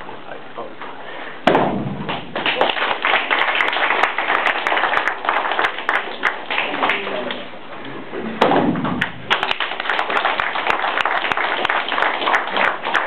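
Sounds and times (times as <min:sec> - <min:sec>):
people clapping: 0:02.1 - 0:07.5, 0:08.9 - 0:13.0.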